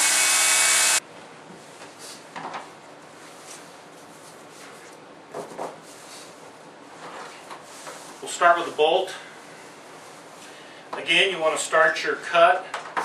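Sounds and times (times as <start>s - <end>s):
electric knife cutting foam: 0.0s - 1.0s.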